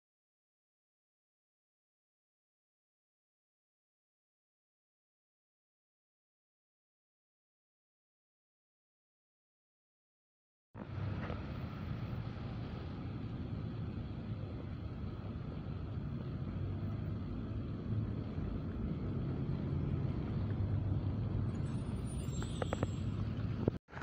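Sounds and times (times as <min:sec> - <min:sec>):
tram rumbling past: 0:10.8 - 0:23.8
faint high squeak: 0:21.5 - 0:23.6.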